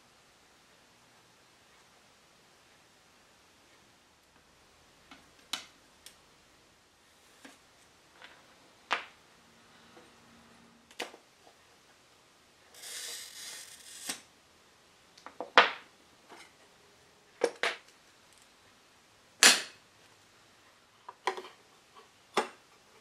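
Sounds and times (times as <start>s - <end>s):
glass cutter scoring glass: 12.8s - 14.2s.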